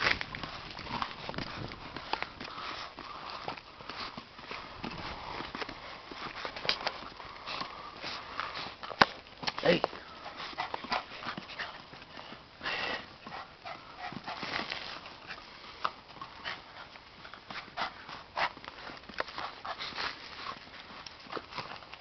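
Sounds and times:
paws scrabbling on tiles: 0.0 - 22.0
puppy sounds: 9.6 - 15.4.

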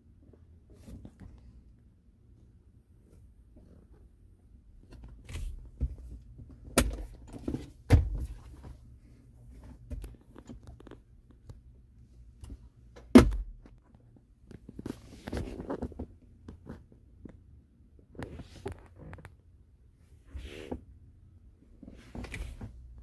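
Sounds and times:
loud thunk: 13.1 - 13.6.

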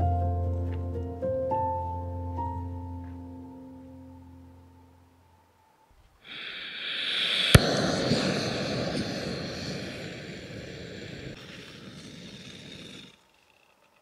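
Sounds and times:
gas hissing: 6.2 - 13.7
stove burner roaring: 6.4 - 13.2.

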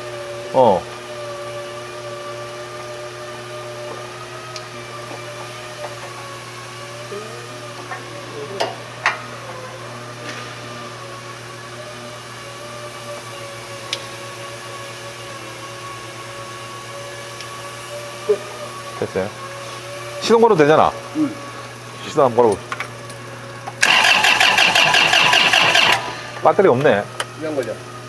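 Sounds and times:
electric motor humming: 0.0 - 28.0.

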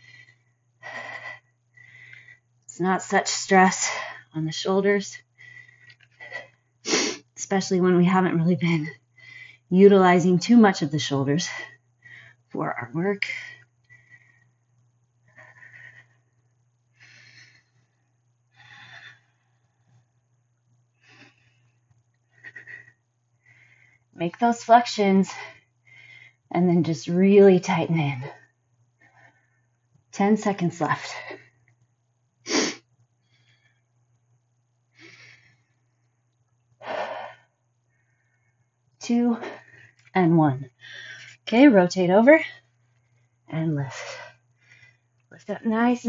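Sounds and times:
woman breathing: 0.0 - 2.6, 3.8 - 7.3, 8.8 - 9.7, 11.5 - 12.5, 13.2 - 20.3, 20.9 - 24.2, 25.3 - 26.5, 28.2 - 29.9, 32.5 - 34.0, 34.9 - 36.2, 36.8 - 40.1, 40.7 - 41.4, 42.6 - 45.3
steady low hum: 0.0 - 46.0.

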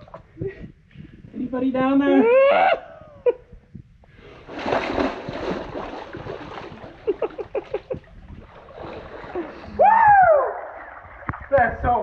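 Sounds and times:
water sloshing: 4.1 - 12.0
person splashing into water: 4.4 - 11.8
short water plops: 4.5 - 12.0.

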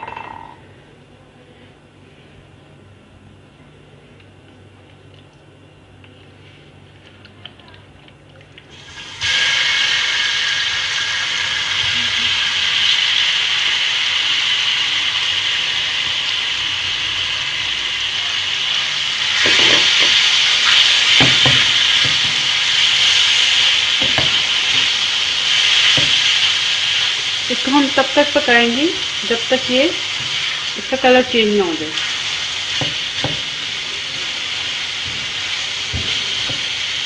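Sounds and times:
chicken sizzling in hot oil: 8.7 - 37.0.

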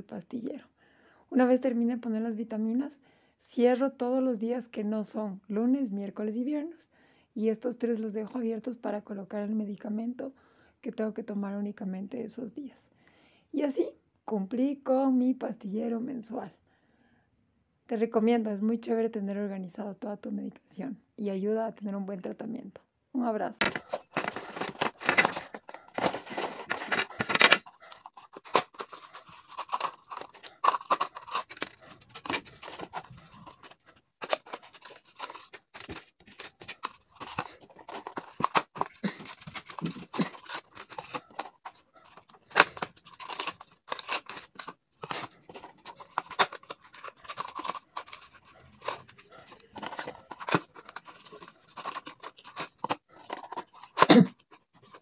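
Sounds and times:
cardboard boxes crinkling: 23.6 - 55.0.

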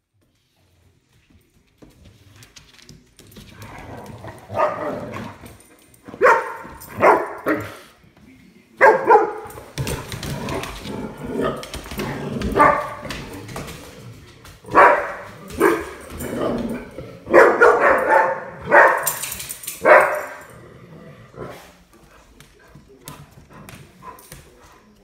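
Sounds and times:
dog barking: 4.5 - 5.0, 6.2 - 7.8, 8.8 - 9.5, 12.6 - 13.0, 14.7 - 16.0, 17.3 - 19.2, 19.8 - 20.5.

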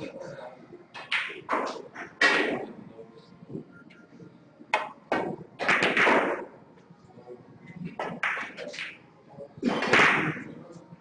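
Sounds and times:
snooker balls knocking: 4.7 - 6.5, 8.0 - 9.0.

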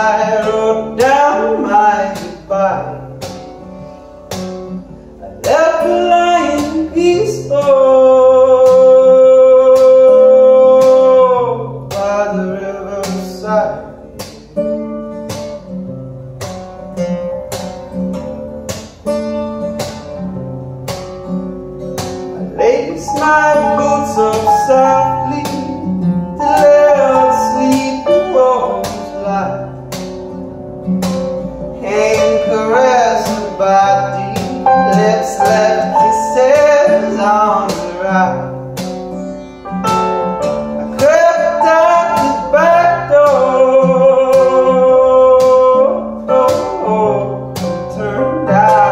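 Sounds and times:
wordless vocal melody: 0.0 - 4.2, 4.8 - 14.5, 22.2 - 48.9
acoustic guitar strummed: 0.0 - 48.9
electric keyboard playing: 21.5 - 37.5, 38.5 - 48.9.

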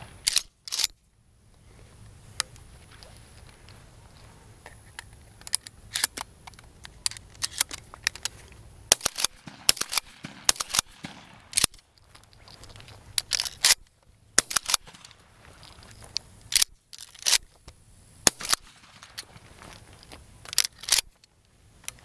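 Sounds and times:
shotgun clicking and clacking: 0.2 - 1.0, 5.0 - 8.3, 8.9 - 17.5, 18.3 - 21.3.

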